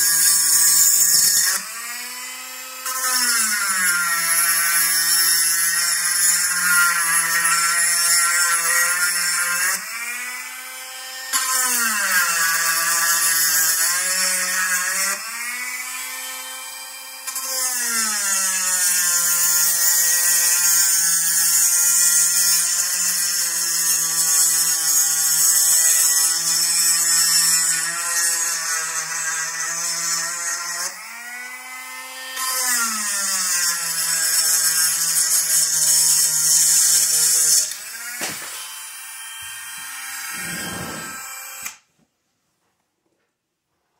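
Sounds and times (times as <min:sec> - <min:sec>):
bit grinding metal: 0:33.5 - 0:41.8
rotary tool motor whine: 0:34.4 - 0:41.8.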